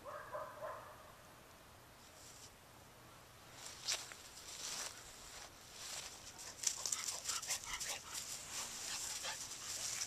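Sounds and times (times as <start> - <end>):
feet moving through dry grass: 3.4 - 10.0.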